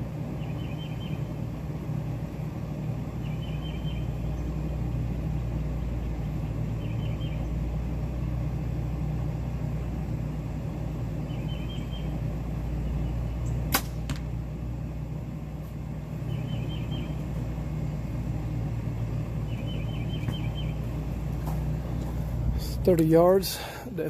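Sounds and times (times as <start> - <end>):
steady low hum: 0.0 - 24.0
bird chirping: 0.3 - 1.4, 3.2 - 7.8, 11.2 - 13.7, 16.2 - 17.5, 19.3 - 21.2
arrow striking target: 13.7 - 14.3
bow release crack: 13.7 - 14.3.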